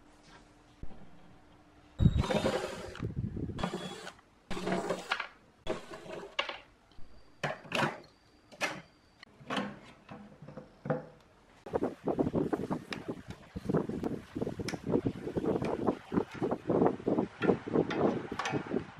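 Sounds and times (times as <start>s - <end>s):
cordless drill running: 2.1s - 3.0s, 3.6s - 6.1s.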